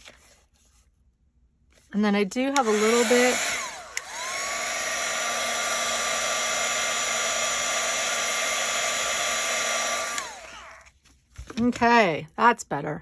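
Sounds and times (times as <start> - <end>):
heat tool blowing air: 2.5 - 10.9.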